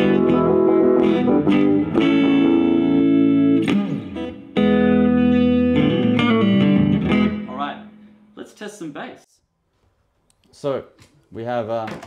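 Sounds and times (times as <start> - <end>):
guitar chords strummed: 0.0 - 8.2.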